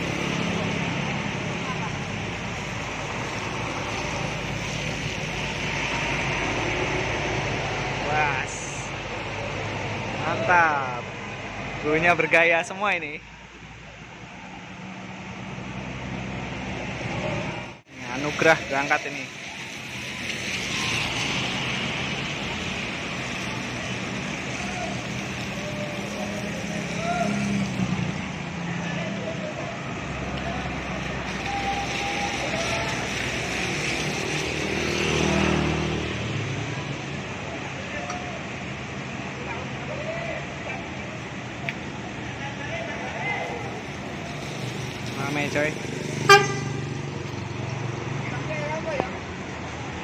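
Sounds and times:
rain hissing: 17.9s - 28.4s, 29.8s - 37.4s
bus diesel engine running: 40.9s - 48.2s.

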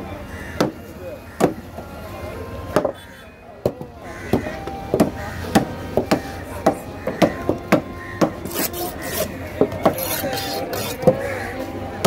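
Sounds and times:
knife chopping fish on wooden table: 5.0s - 11.2s.

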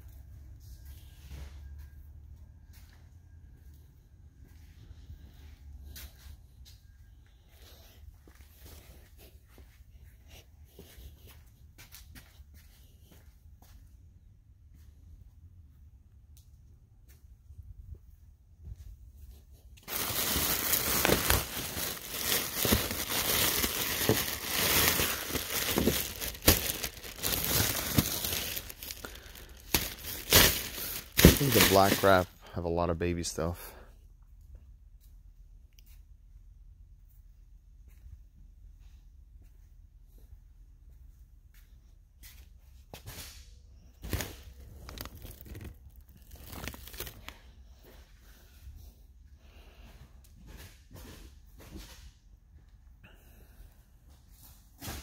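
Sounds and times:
cardboard and plastic wrap rustling: 19.8s - 32.3s, 44.0s - 47.4s
plastic sheeting crinkling: 19.8s - 32.3s, 44.0s - 47.4s.

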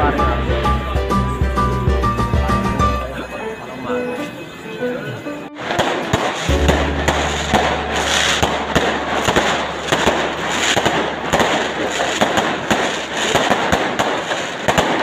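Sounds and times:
fireworks bangs and crackles: 5.6s - 15.0s.

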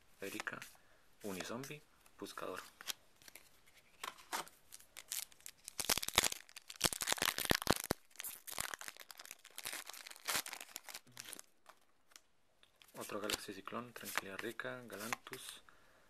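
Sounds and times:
foil wrapper tearing and crinkling: 4.7s - 11.5s.

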